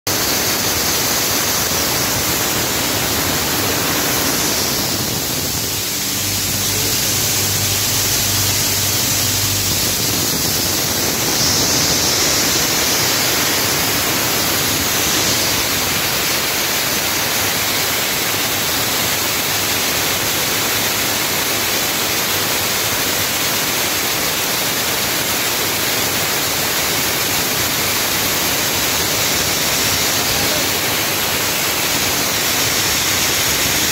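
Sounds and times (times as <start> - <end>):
processing machine rushing noise: 0.1 - 17.9, 27.4 - 33.9.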